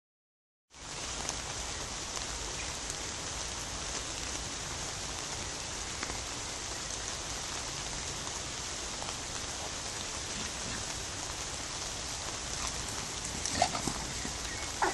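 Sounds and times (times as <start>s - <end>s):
light rain falling: 0.7s - 14.9s
raindrops ticking: 5.1s - 14.9s.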